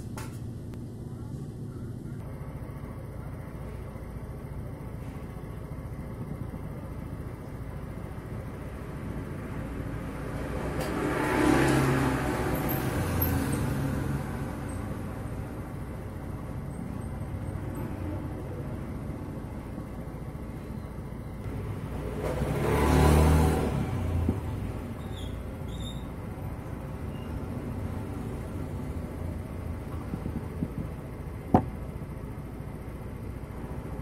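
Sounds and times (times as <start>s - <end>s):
low traffic rumble: 0.0s - 34.0s
motor vehicle passing by: 8.6s - 15.7s, 21.4s - 31.6s.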